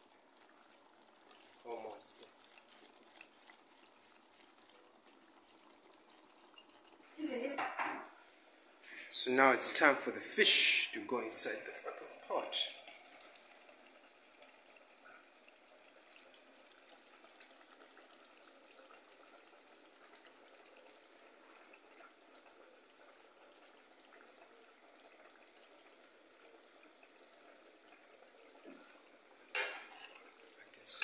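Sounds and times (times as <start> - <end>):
faint sizzling in a pan: 0.0 - 31.0
spatula scraping a pan: 29.6 - 30.4.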